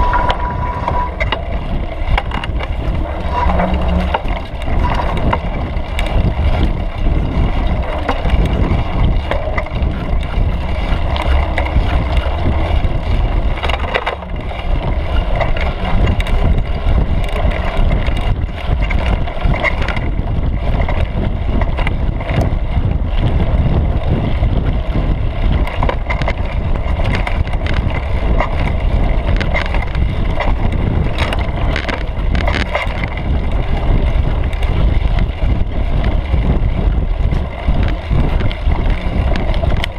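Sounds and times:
bike clicks and rattles: 0:00.0 - 0:39.9
bike tyres on dirt trail: 0:00.0 - 0:39.9
wind on microphone: 0:00.0 - 0:39.9.

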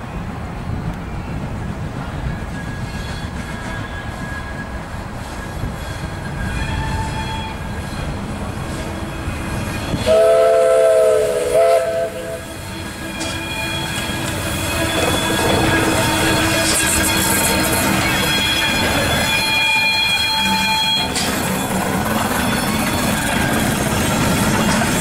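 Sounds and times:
steam locomotive rumbling on track: 0:00.0 - 0:25.0
steam whistle blasts: 0:02.8 - 0:08.1, 0:08.7 - 0:21.2.

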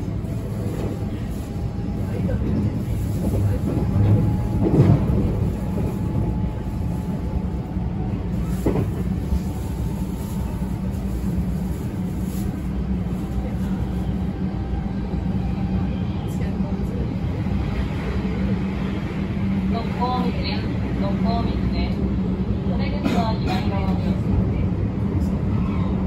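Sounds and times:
train wheels rumbling on rail: 0:00.0 - 0:26.0.

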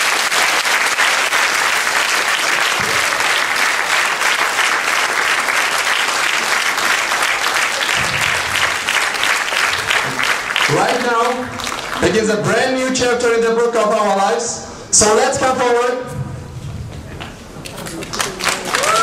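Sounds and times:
large audience applauding: 0:00.0 - 0:12.2, 0:17.2 - 0:19.0.

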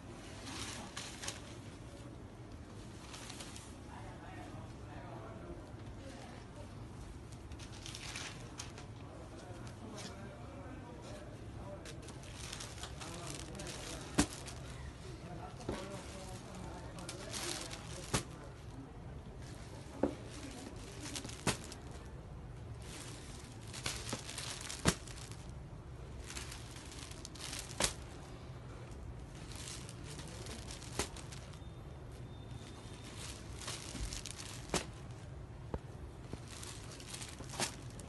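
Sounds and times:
silk fabric rustling: 0:11.9 - 0:14.8, 0:15.6 - 0:18.7, 0:20.2 - 0:22.0, 0:22.7 - 0:28.2, 0:29.2 - 0:31.6, 0:32.7 - 0:35.2, 0:36.2 - 0:38.0.

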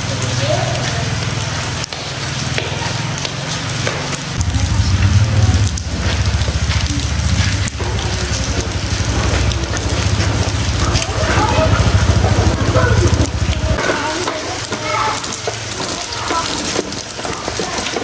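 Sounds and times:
rain on a metal roof: 0:00.0 - 0:18.0
low rumble: 0:04.4 - 0:13.8.

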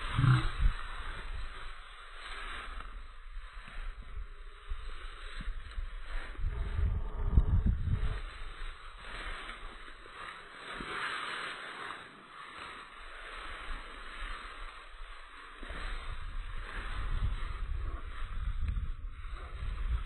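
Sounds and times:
wind rumble on microphone: 0:00.0 - 0:11.0, 0:12.6 - 0:20.0
dry grass rustling: 0:00.0 - 0:20.0.

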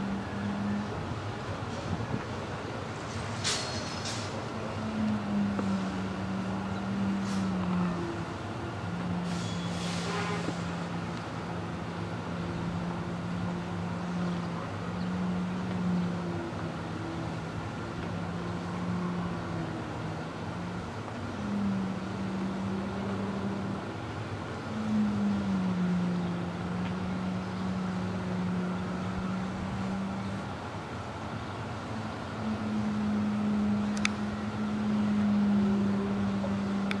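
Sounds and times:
engine hum: 0:00.0 - 0:37.0
wind: 0:00.0 - 0:37.0
brief hiss: 0:09.3 - 0:10.7.

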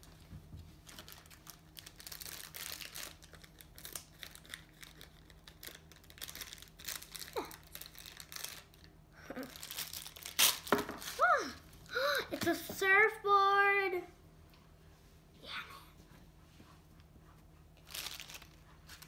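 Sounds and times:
plastic wrapper crackling: 0:00.8 - 0:11.2, 0:17.8 - 0:19.0.

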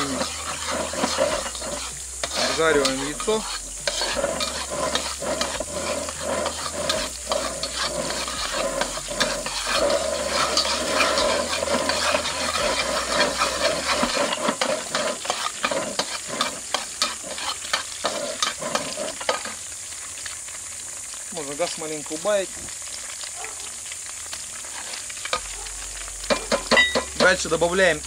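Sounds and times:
spatula scraping a wok: 0:00.0 - 0:19.7, 0:24.3 - 0:27.8
egg sizzling in hot oil: 0:00.0 - 0:28.0.

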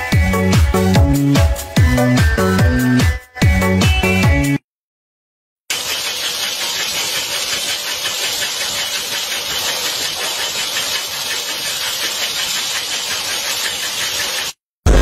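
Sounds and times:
fast fine rattle: 0:05.7 - 0:14.6
machine whirring and hissing: 0:05.7 - 0:15.0.

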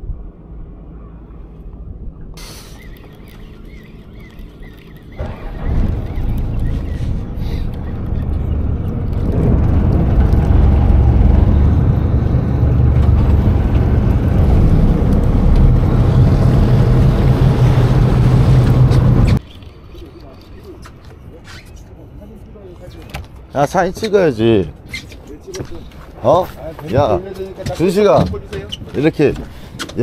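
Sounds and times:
boat engine running: 0:02.7 - 0:19.4.

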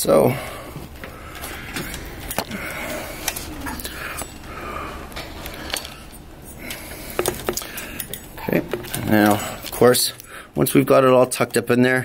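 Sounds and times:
cable bundle rustling: 0:00.6 - 0:10.7
connectors clicking and tapping: 0:01.0 - 0:04.5, 0:05.1 - 0:10.3.

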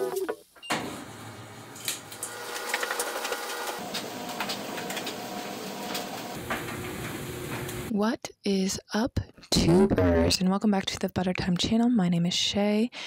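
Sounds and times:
washing machine whirring: 0:00.0 - 0:07.9.

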